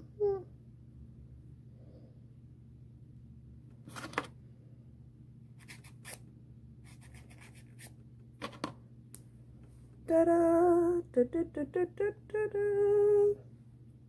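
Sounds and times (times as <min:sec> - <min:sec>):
faint low hum: 0:00.0 - 0:14.0
nail file rasping: 0:06.9 - 0:07.9.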